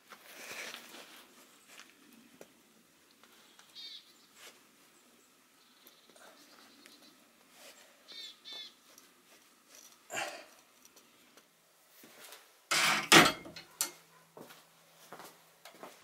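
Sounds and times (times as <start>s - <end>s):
bird chirps: 3.5s - 4.4s, 8.1s - 8.8s.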